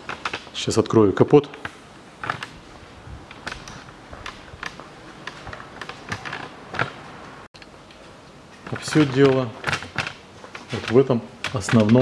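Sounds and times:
light clicks and knocks: 8.6 - 12.0.

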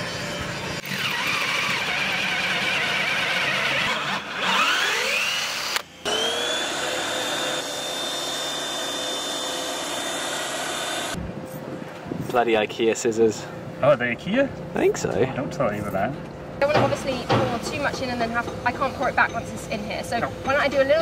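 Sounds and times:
vacuum cleaner whining: 0.0 - 11.2
power drill boring into wood: 0.8 - 11.2.

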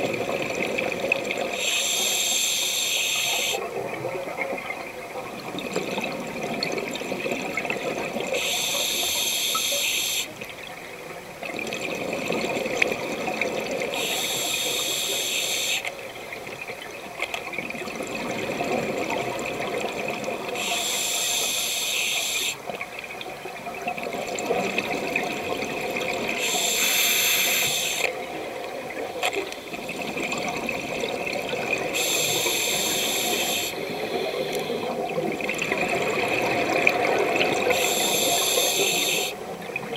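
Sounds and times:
regulator breathing hiss: 1.6 - 3.6, 8.4 - 10.4, 13.9 - 15.9, 20.6 - 22.6, 26.4 - 28.1, 32.0 - 35.0, 37.7 - 39.4
exhaled air bubbling: 22.1 - 39.9.

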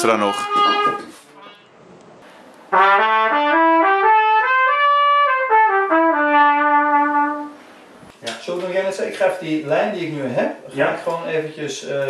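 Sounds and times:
trumpet playing short notes: 0.0 - 1.6, 2.7 - 7.6.

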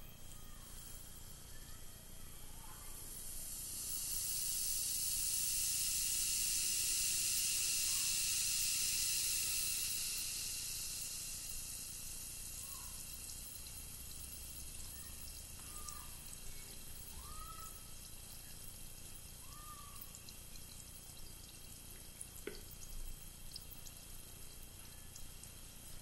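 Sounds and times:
fizzing bubbles hissing: 0.0 - 1.6, 2.6 - 26.0.

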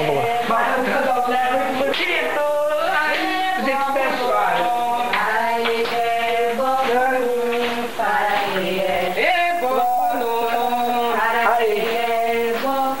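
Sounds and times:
voices singing a ritual chant: 0.0 - 13.0.

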